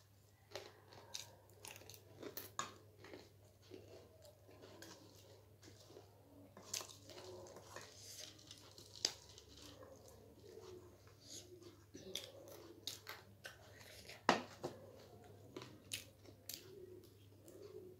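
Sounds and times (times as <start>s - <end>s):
person crunching snack food: 0.5s - 5.8s, 6.6s - 10.1s.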